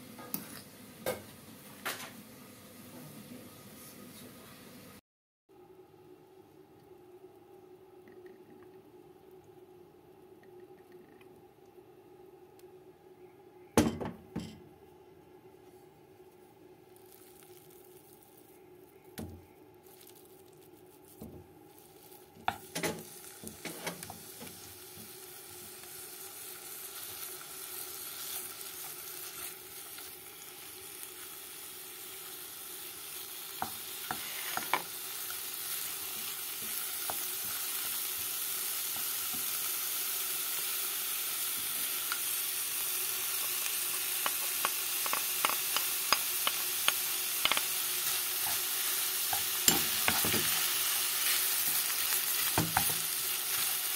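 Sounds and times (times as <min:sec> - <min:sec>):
meat sizzling in oil: 0:17.0 - 0:18.6, 0:19.8 - 0:53.9
wooden spoon scraping a pot: 0:34.1 - 0:34.8.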